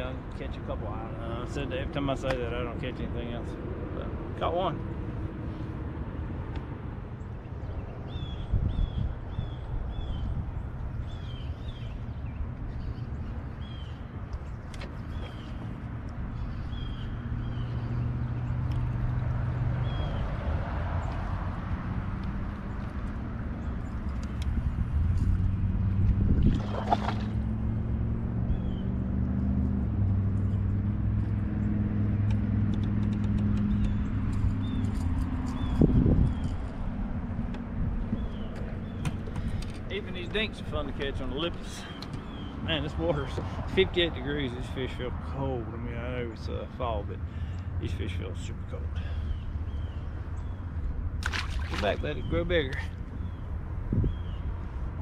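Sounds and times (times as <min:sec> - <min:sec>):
bird chirping: 0:07.2 - 0:19.0, 0:33.0 - 0:36.7, 0:38.0 - 0:43.8.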